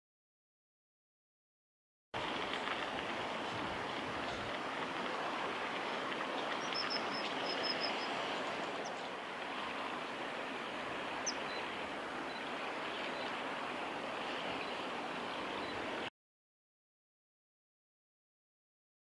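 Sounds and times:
flowing river water: 0:02.2 - 0:16.1.

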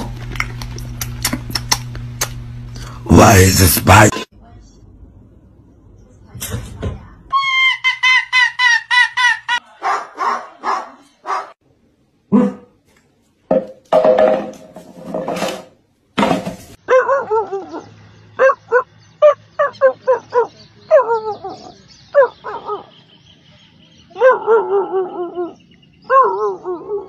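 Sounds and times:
dogs barking and yelping: 0:07.8 - 0:11.6, 0:16.8 - 0:23.1, 0:24.0 - 0:27.0
dog howling: 0:16.9 - 0:22.9, 0:24.1 - 0:27.0.

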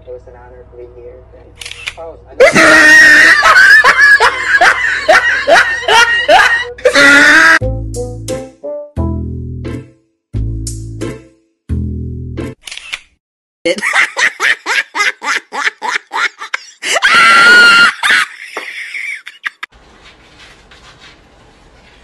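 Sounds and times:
shrill scream: 0:02.4 - 0:03.9, 0:06.8 - 0:07.6, 0:16.9 - 0:18.2.

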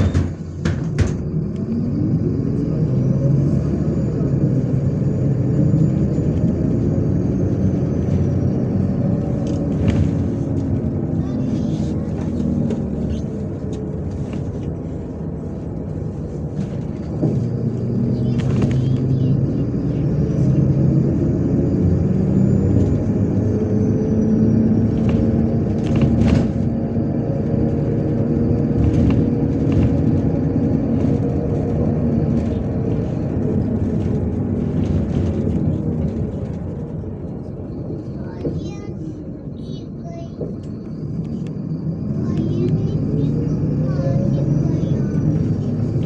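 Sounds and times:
sharp knocks from bus body: 0:00.0 - 0:01.2
bus diesel engine and road rumble: 0:00.0 - 0:46.0.

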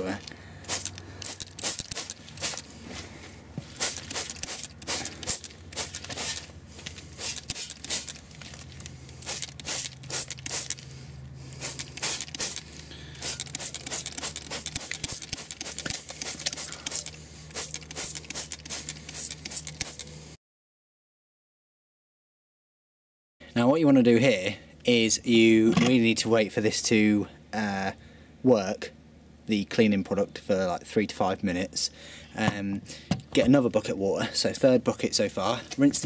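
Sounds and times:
steady low hum: 0:00.0 - 0:20.4
spray bottle hissing: 0:00.6 - 0:02.7, 0:03.7 - 0:08.3, 0:09.2 - 0:20.3.

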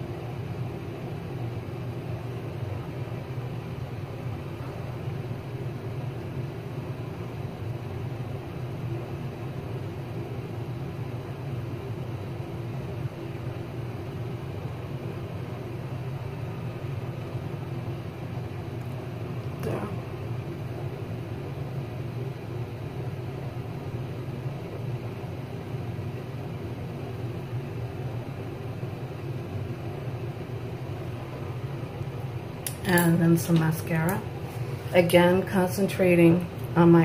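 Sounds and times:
low mechanical hum with hiss: 0:00.0 - 0:37.0.

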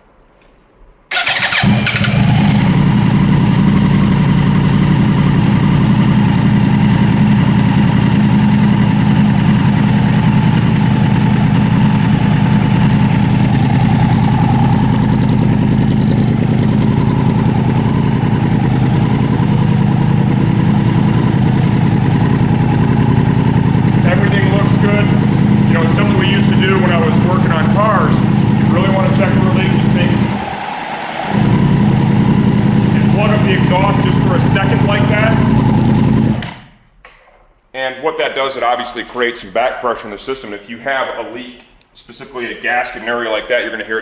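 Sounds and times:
motorcycle engine cranking: 0:01.1 - 0:03.0
loud motorcycle engine idling: 0:01.1 - 0:36.4.

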